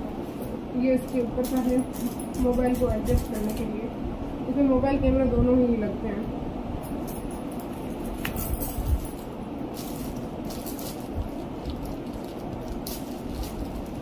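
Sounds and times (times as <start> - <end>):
plastic bag crinkling: 9.7 - 14.0.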